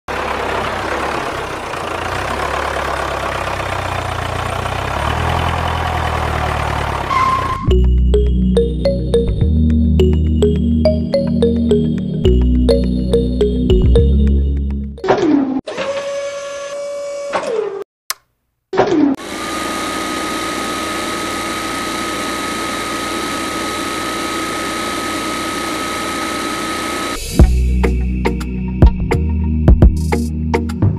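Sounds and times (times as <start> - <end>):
tractor engine rumbling: 0.1 - 14.8.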